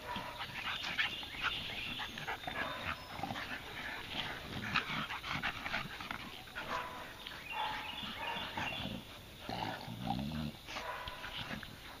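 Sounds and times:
dogs scuffling and snuffling: 0:00.0 - 0:12.0
dog growling: 0:01.8 - 0:07.1, 0:07.9 - 0:12.0.

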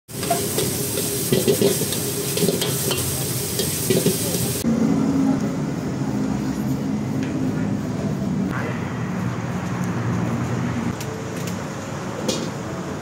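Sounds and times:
metal ladle scraping a pan: 0:00.1 - 0:04.6
meat sizzling in a wok: 0:00.1 - 0:04.7.

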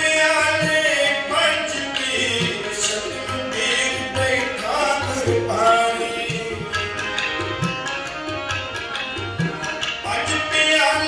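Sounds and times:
people singing devotional songs: 0:00.0 - 0:08.4
harmonium: 0:00.0 - 0:11.0
tabla drum strokes: 0:02.2 - 0:10.7.

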